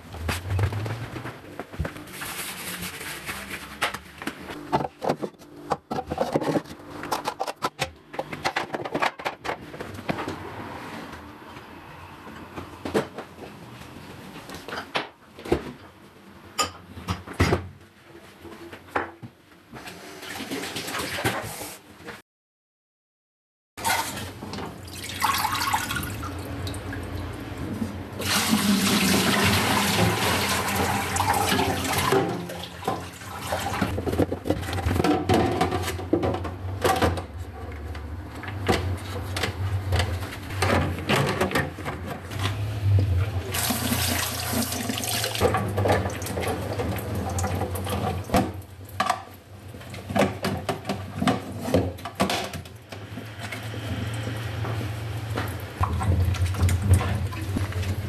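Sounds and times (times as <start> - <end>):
plastic baskets clicking and knocking: 3.7 - 10.4, 33.8 - 42.4.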